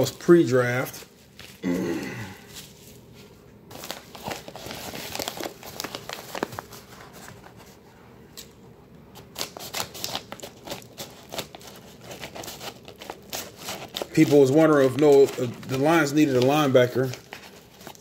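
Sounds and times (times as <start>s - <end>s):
paper envelope crinkling: 2.5s - 7.8s, 9.2s - 18.0s.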